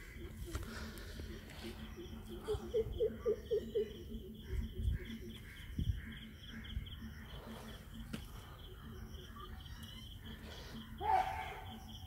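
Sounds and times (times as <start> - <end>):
lower repeated animal calls: 8.9 - 12.0
fast pulsing high animal call: 11.0 - 12.0.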